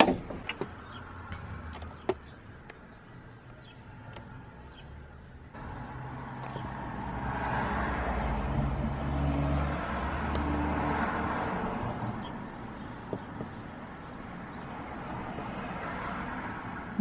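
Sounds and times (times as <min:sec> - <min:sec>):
motor vehicle passing by: 0:05.6 - 0:12.9.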